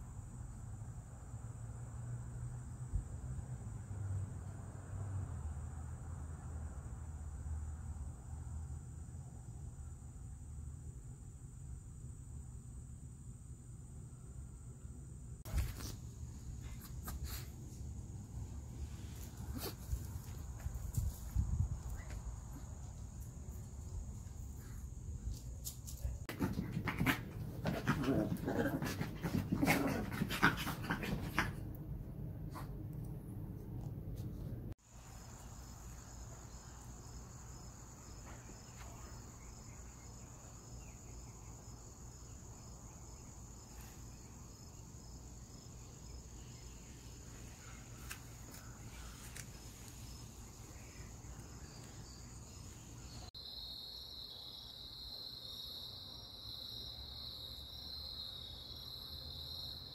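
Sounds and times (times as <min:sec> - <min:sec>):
dogs playing and scuffling: 0:15.5 - 0:34.6
insects trilling: 0:34.9 - 0:59.9.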